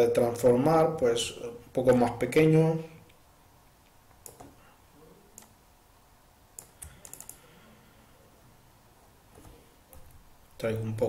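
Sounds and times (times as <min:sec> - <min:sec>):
keyboard and mouse clicks: 0:04.1 - 0:04.6, 0:06.5 - 0:07.4.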